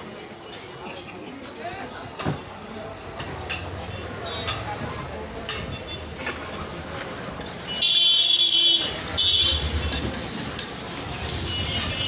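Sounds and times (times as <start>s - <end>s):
street background noise: 0.0s - 12.0s.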